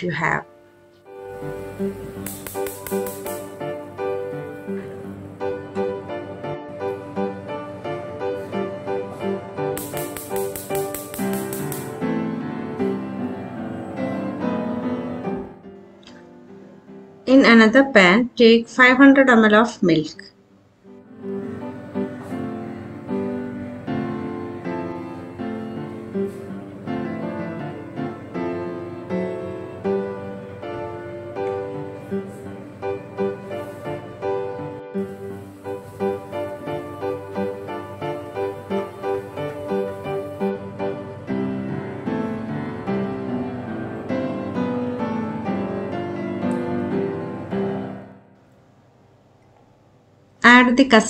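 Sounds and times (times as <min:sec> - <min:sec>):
piano music: 0:00.0 - 0:17.4, 0:20.8 - 0:48.4.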